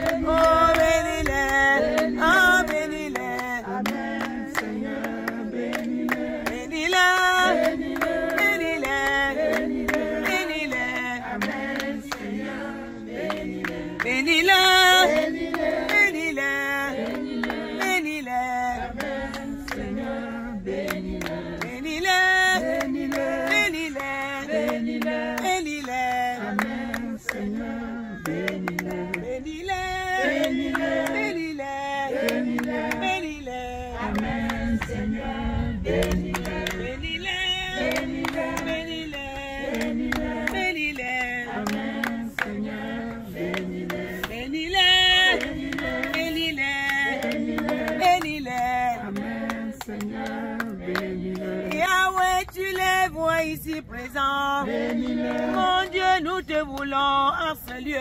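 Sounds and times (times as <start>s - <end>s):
hand clapping: 0.0s - 18.2s, 19.0s - 20.2s, 20.8s - 29.3s, 30.2s - 31.4s, 32.1s - 33.2s, 34.1s - 35.0s, 35.9s - 36.9s, 37.7s - 44.5s, 45.2s - 53.0s, 54.6s - 58.0s
group singing a chant: 0.0s - 58.0s.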